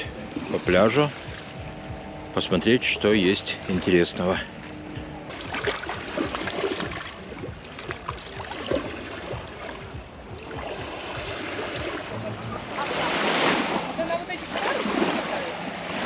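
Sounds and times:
waves washing onto beach: 0:05.3 - 0:16.0.

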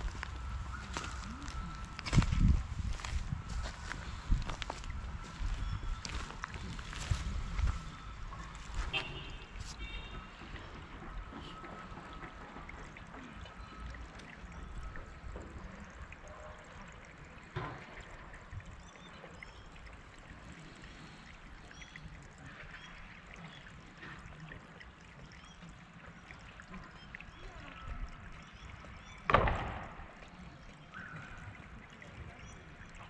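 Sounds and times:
sharp knocks: 0:29.3 - 0:30.1.

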